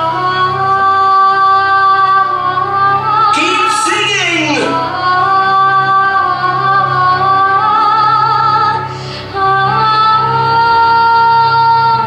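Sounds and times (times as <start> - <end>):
woman singing wordless notes: 0.3 - 8.4.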